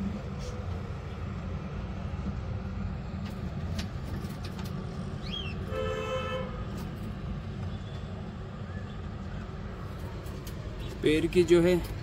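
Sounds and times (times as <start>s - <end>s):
bird chirp: 5.2s - 5.6s
flat horn-like honk: 5.7s - 6.7s.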